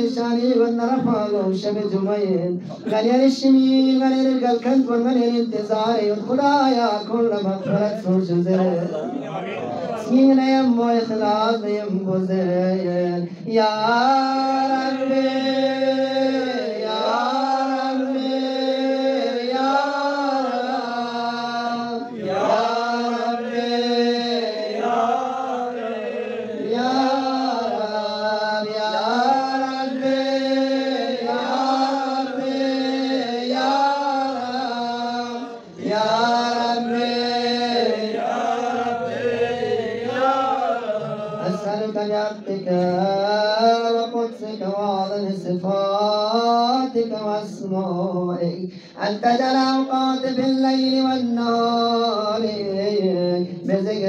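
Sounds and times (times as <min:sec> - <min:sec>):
man chanting into microphone: 0:00.0 - 0:54.0
breaths: 0:48.7 - 0:49.0.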